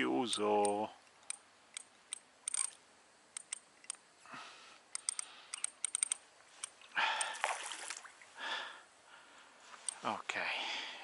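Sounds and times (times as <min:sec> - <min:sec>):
rush of breath: 0:04.2 - 0:05.6, 0:07.0 - 0:07.6, 0:08.4 - 0:09.7
fishing reel clicking: 0:05.0 - 0:06.2.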